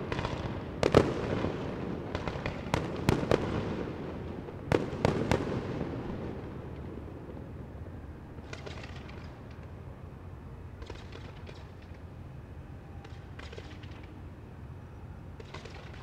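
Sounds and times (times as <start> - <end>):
fireworks bursting with bangs: 0.0 - 7.6
faint firework crackling: 0.0 - 12.1.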